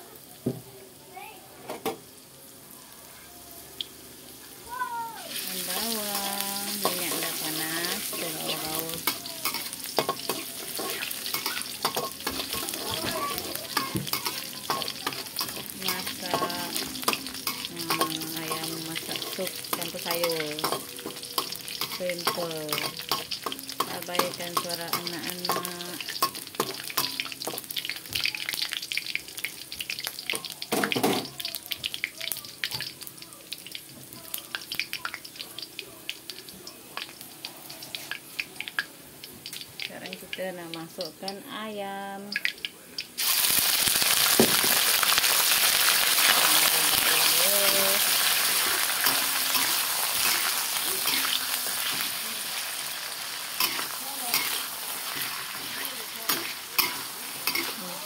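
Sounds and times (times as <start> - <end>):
onion sizzling in oil: 0.0 - 58.0
metal spatula scraping pan: 6.7 - 27.6.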